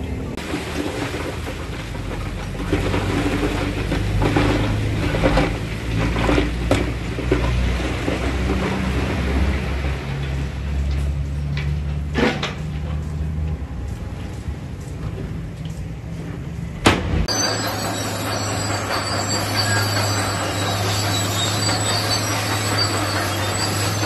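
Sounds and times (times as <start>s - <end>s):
diesel engines running: 0.0s - 24.0s.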